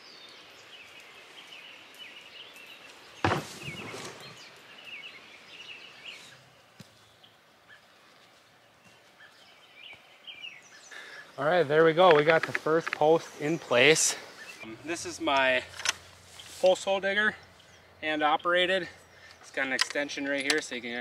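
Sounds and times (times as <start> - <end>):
birds chirping and singing: 0.0 - 21.0
post dropping into water hole: 3.2 - 4.3.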